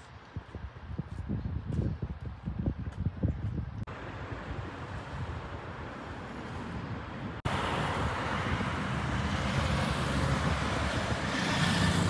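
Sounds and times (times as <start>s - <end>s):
cars driving past: 3.9s - 12.0s.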